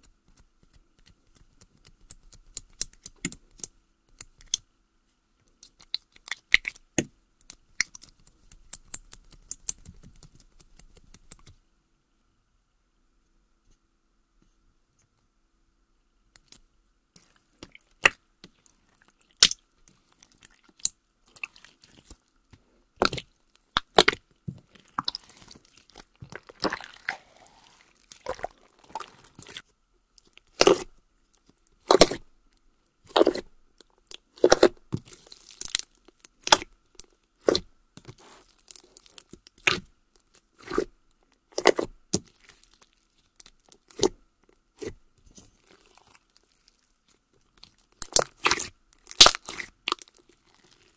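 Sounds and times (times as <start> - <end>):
slime popping and squishing: 17.2 - 19.6, 23.0 - 29.6, 30.2 - 30.9, 31.8 - 32.2, 33.1 - 39.9, 41.5 - 44.2, 45.6 - 46.9, 47.5 - 50.9.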